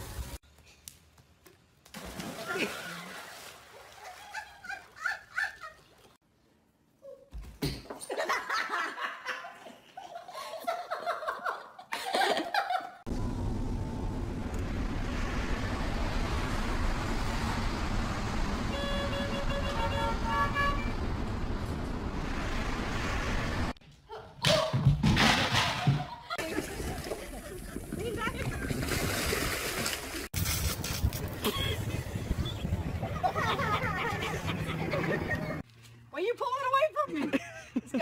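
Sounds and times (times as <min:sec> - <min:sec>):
street traffic noise: 0:13.1 - 0:23.8, 0:30.6 - 0:36.1
vehicle horn honks: 0:18.7 - 0:21.0.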